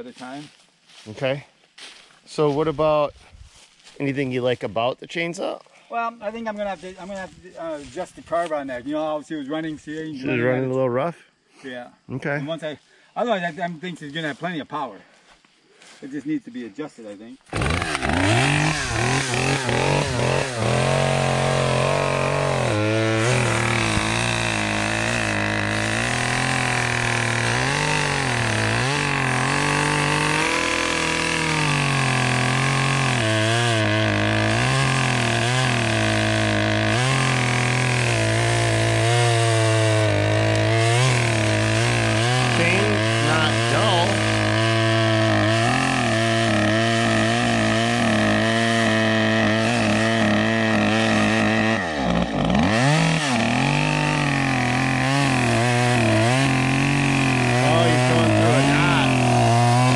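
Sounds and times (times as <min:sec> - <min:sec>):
chainsaw cutting wood: 0:17.5 - 0:59.9.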